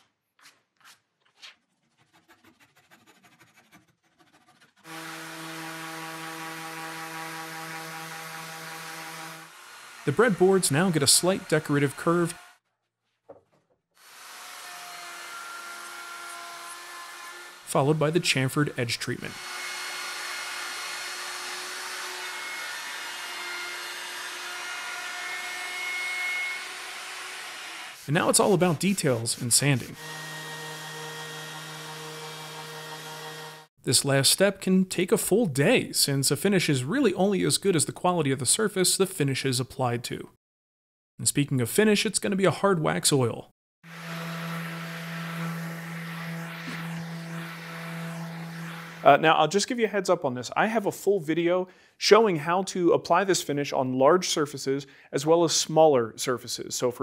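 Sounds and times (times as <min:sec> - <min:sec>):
orbital sander whirring: 0:04.8 - 0:12.6, 0:14.0 - 0:18.2, 0:19.3 - 0:33.7, 0:43.9 - 0:49.2
router motor whine: 0:14.0 - 0:17.7, 0:30.0 - 0:33.7, 0:43.9 - 0:49.1
dust extractor air rush: 0:44.0 - 0:49.2.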